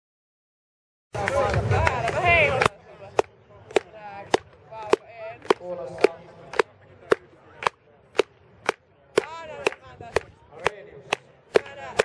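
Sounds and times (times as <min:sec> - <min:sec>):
spectators clapping rhythmically: 0:01.2 - 0:12.0.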